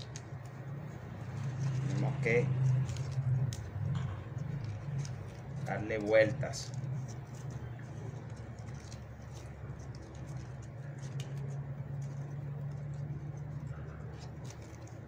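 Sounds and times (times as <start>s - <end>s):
palm leaves rustling and scratching: 0.0s - 15.0s
steady low hum: 0.0s - 15.0s.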